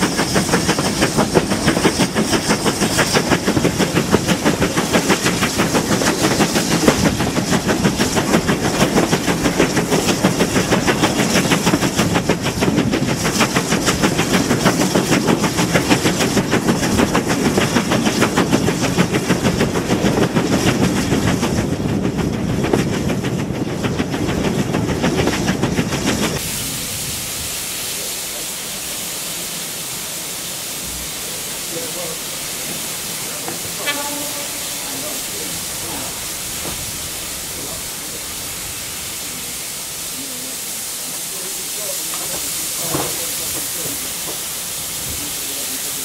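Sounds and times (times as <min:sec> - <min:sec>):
steam hiss: 0:00.0 - 0:46.0
steam locomotive exhaust beats: 0:00.0 - 0:46.0.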